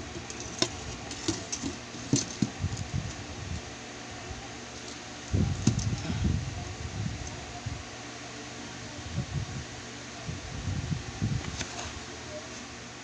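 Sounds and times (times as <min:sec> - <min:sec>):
handling knocks and rustles: 0:00.0 - 0:03.2
steady background hum: 0:00.0 - 0:13.0.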